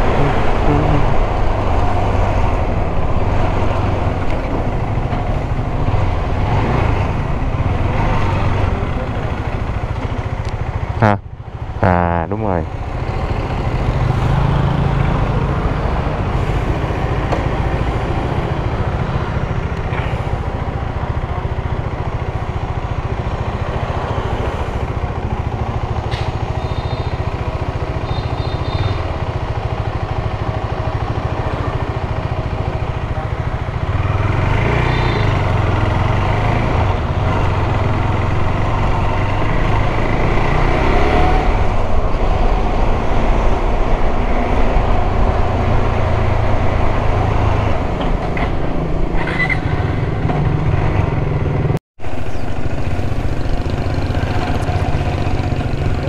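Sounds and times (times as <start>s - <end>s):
motorcycle engine running: 48.9s - 56.0s.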